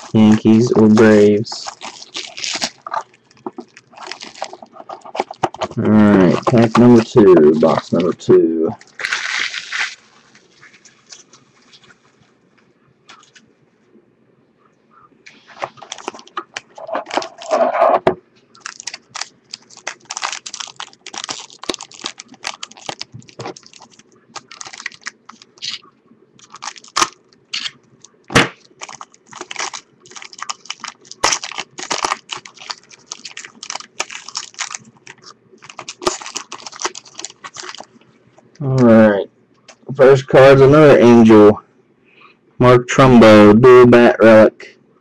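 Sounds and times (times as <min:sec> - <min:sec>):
foil wrapper crinkling: 0:00.0 - 0:11.9, 0:15.5 - 0:17.6, 0:18.5 - 0:25.8, 0:26.4 - 0:38.0.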